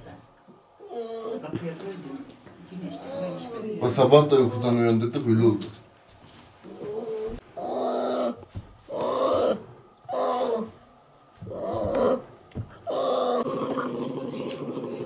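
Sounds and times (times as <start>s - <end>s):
bear cub crying out: 7.6s - 10.7s, 11.5s - 12.3s.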